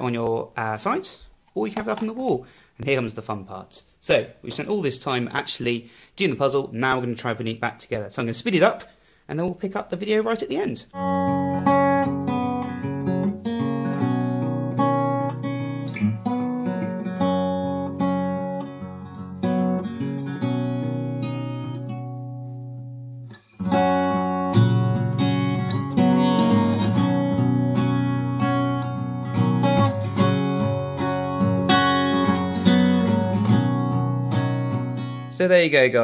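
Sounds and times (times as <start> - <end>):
acoustic guitar picking and strumming: 10.9 - 35.4.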